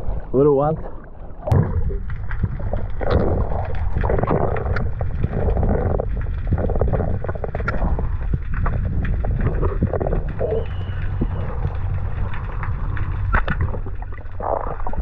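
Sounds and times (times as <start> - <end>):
underwater low rumble: 0.0 - 15.0
sharp clicks and crackles: 1.4 - 15.0.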